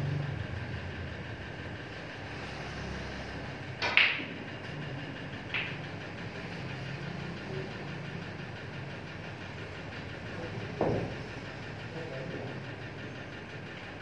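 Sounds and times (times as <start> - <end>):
steady low hum: 0.0 - 14.0
snooker balls clicking: 3.8 - 6.4.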